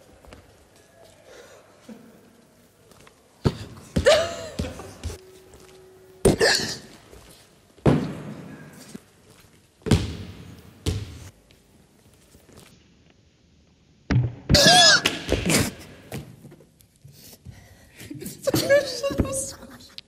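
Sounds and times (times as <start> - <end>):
basketball thudding: 7.8 - 8.5, 9.8 - 11.3.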